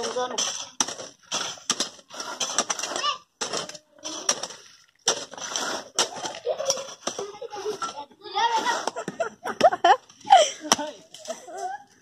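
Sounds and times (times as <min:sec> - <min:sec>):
earth scraping and crumbling: 0:00.0 - 0:09.2.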